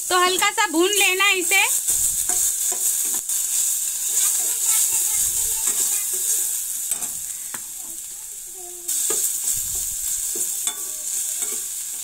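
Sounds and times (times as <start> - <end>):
aromatics sizzling in hot oil: 0.0 - 12.0
metal spatula scraping pan: 8.9 - 12.0.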